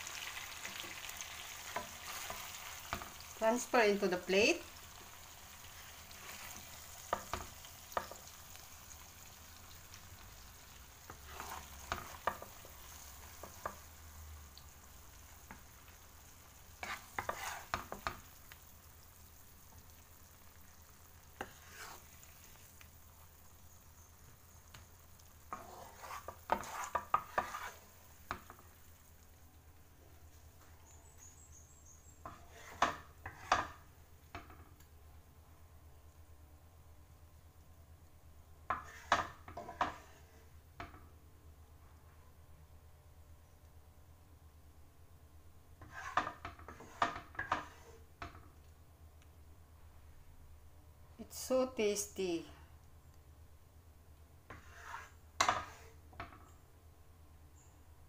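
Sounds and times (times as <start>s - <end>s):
spatula scraping frying pan: 0.0s - 9.4s, 10.6s - 18.4s, 21.2s - 22.8s, 25.3s - 28.8s, 32.2s - 33.9s, 38.7s - 40.5s, 45.8s - 48.3s, 54.5s - 56.3s
sauce sizzling faintly: 0.0s - 40.9s.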